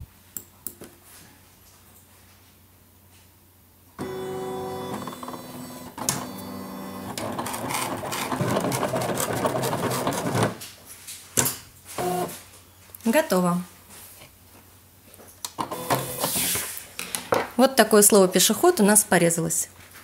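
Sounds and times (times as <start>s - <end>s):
cutting plotter clicks: 4.0s - 10.5s
cutting plotter motors whining: 4.0s - 10.5s.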